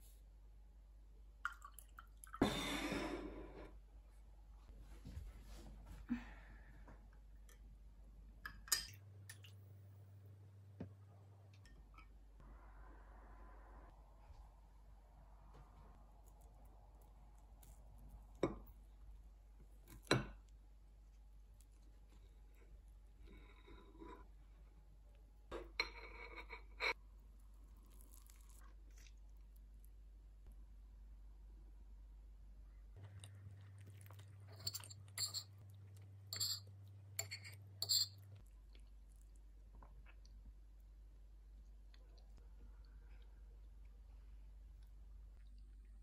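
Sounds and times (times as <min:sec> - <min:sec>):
knife clinking on ceramic plate: 0:34.6 - 0:35.5, 0:36.3 - 0:36.6, 0:37.2 - 0:38.2.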